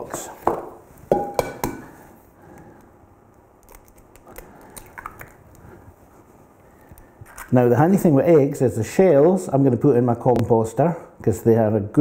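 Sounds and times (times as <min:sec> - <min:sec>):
egg knocking against bowl: 0:00.1 - 0:01.9
eggshell crackling: 0:02.8 - 0:05.8, 0:06.6 - 0:08.0.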